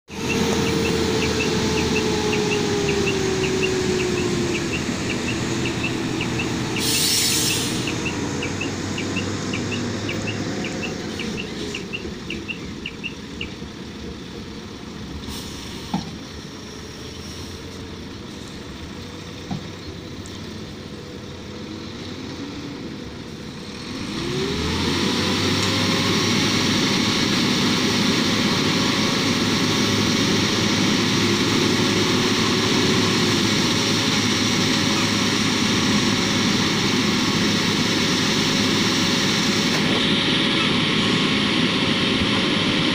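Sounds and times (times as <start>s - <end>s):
diesel truck engines revving: 0.0s - 42.9s
reversing alarm beeping: 0.1s - 13.6s
short hiss: 6.8s - 7.9s.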